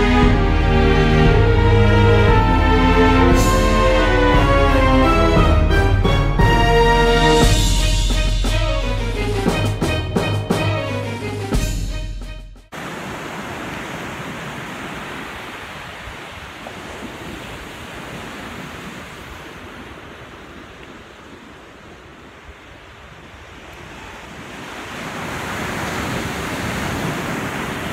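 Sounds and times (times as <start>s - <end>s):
ocean surf washing ashore: 0.0s - 11.5s, 12.7s - 27.9s.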